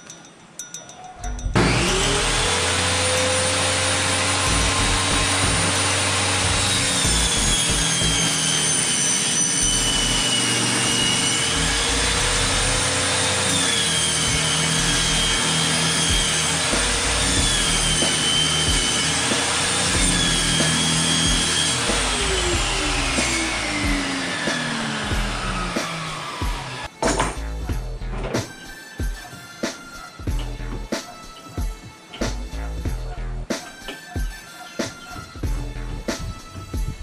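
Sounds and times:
saw spinning down: 0:01.6 - 0:27.2
table saw cutting wood: 0:01.6 - 0:27.7, 0:28.3 - 0:32.8.

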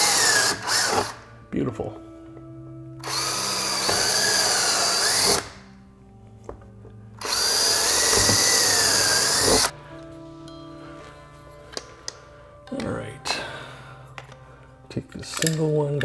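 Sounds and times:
power drill whining: 0:00.0 - 0:01.3, 0:03.0 - 0:05.7, 0:07.2 - 0:09.7.

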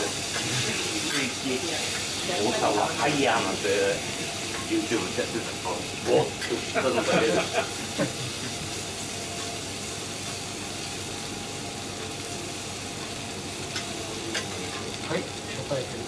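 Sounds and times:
beef sizzling on steel griddle: 0:00.0 - 0:16.0.

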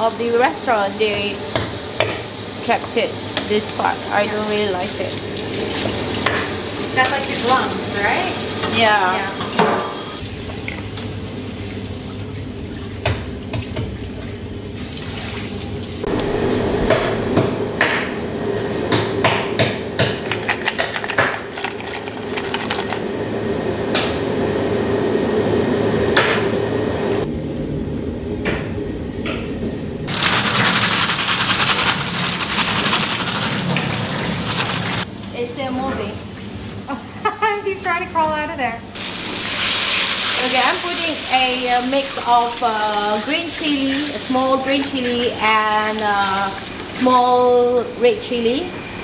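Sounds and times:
tap water running into sink: 0:30.1 - 0:35.0.

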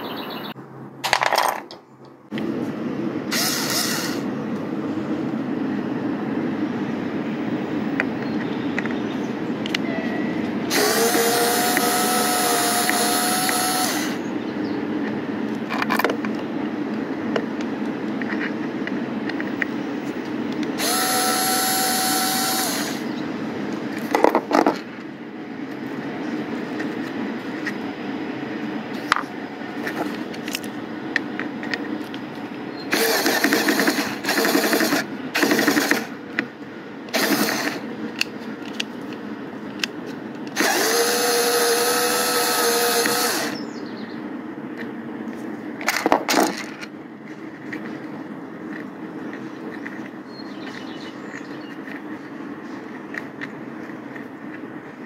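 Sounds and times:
steady background noise: 0:00.0 - 0:55.0
electric screwdriver motor whirring: 0:03.3 - 0:04.2, 0:10.7 - 0:14.2, 0:20.8 - 0:23.1, 0:32.9 - 0:36.1, 0:37.1 - 0:38.3, 0:40.5 - 0:43.6.

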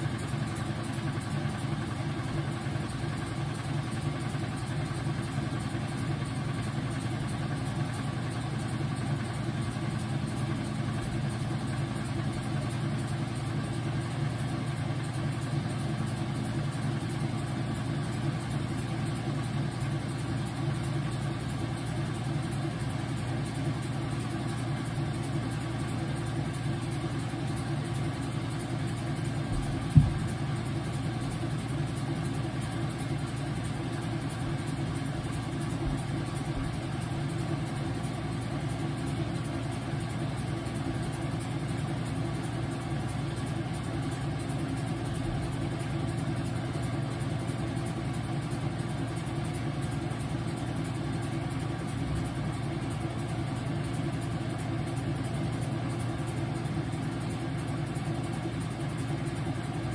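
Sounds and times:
washing machine hum and rumble: 0:00.0 - 0:59.9
sharp knock: 0:29.9 - 0:30.3.

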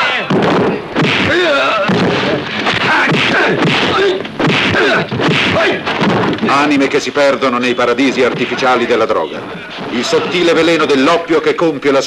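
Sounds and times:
fighters shouting: 0:00.0 - 0:06.0
punch and kick impacts: 0:00.2 - 0:06.6.

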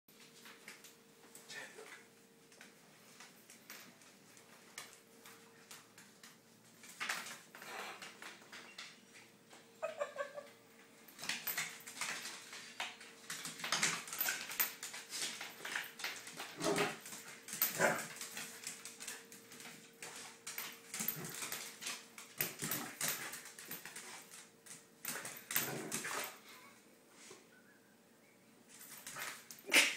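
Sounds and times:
dog claws clicking on tiles: 0:11.1 - 0:26.4.

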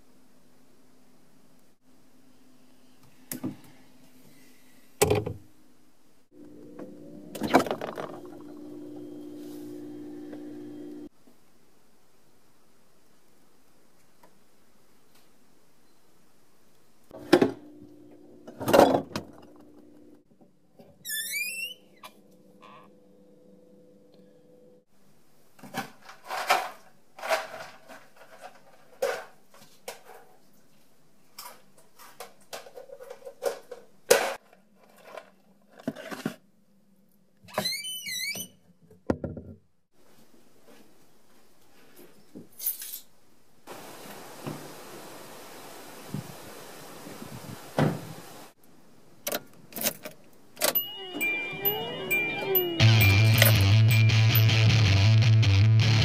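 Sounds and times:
faint steady hum: 0:00.0 - 0:20.9, 0:21.8 - 0:25.6
music with sweeping tones: 0:50.9 - 0:56.0.

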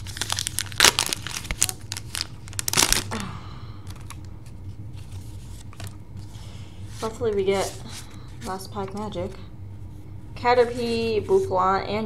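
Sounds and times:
foil wrapper crinkling and tearing: 0:00.0 - 0:03.3.

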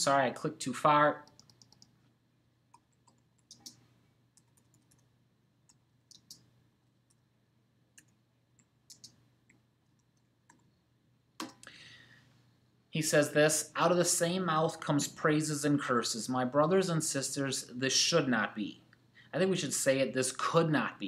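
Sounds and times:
mouse click: 0:05.7 - 0:06.5.

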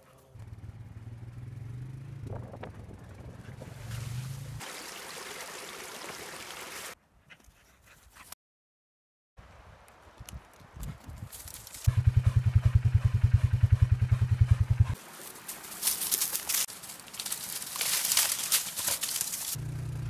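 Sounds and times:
creek water running over rocks: 0:03.9 - 0:07.0.

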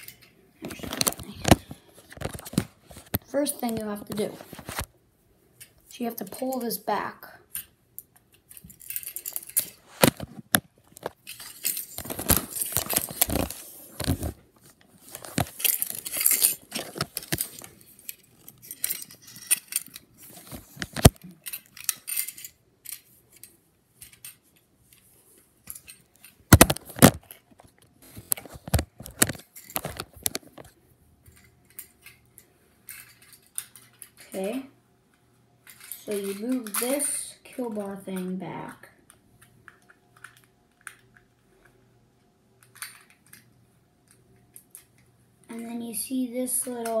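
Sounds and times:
handling rustling: 0:08.5 - 0:25.1.

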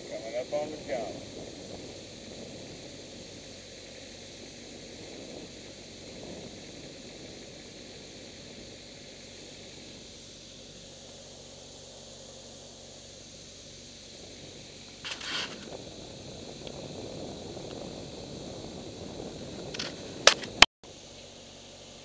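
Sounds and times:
steady hiss: 0:00.0 - 0:22.0
camera handling scrapes: 0:15.0 - 0:15.7
rubbing on camera: 0:15.0 - 0:15.7.

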